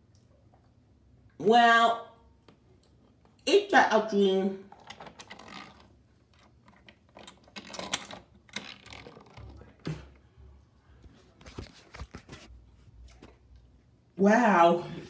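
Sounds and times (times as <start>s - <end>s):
plastic toy train clicks and clatter: 4.8s - 9.6s.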